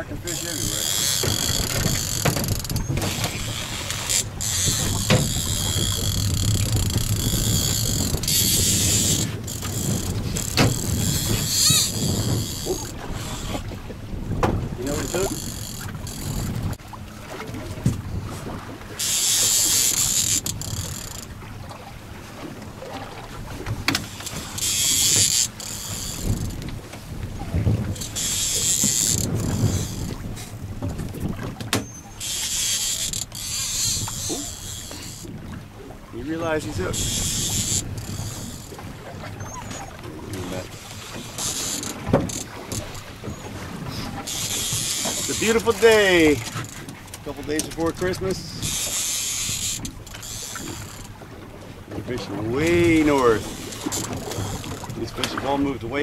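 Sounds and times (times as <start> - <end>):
low rumble of boat engine: 0.0 - 56.0
fishing reel gears whirring: 0.2 - 13.7, 14.8 - 16.8, 18.9 - 21.3, 23.9 - 26.7, 27.9 - 30.2, 31.8 - 35.3, 36.2 - 51.2, 52.1 - 55.0.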